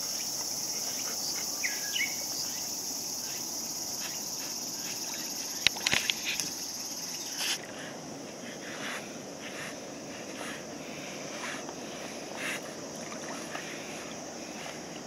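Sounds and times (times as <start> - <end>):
insect chorus buzzing: 0.0 - 15.0
dogs swimming water splashing: 4.0 - 7.8, 11.8 - 15.0.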